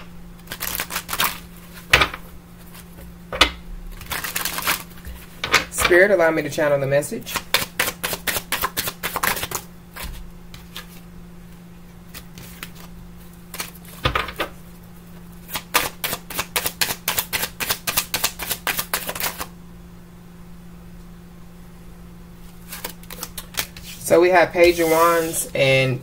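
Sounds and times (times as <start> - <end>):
cards being shuffled by hand: 0.4 - 3.0, 3.9 - 6.0, 7.2 - 11.0, 12.1 - 14.6, 15.4 - 19.5, 22.4 - 25.6
low hum: 1.3 - 6.8.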